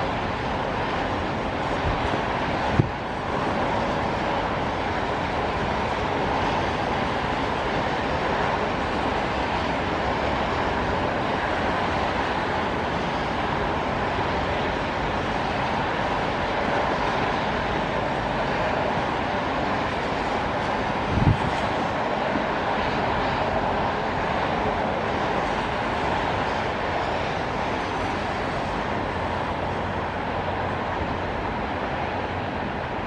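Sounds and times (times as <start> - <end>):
tyres swishing on wet road: 0.0 - 33.0.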